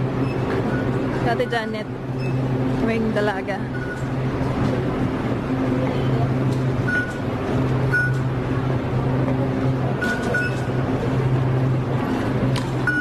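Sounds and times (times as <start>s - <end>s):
short high electronic beeps: 10.0s - 10.7s.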